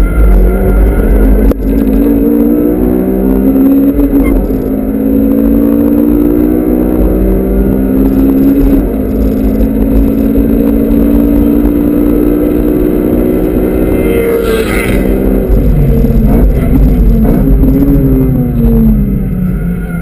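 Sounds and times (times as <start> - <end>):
car engine running: 0.0 - 20.0
road and wind rumble: 0.0 - 20.0
car passing: 13.2 - 20.0.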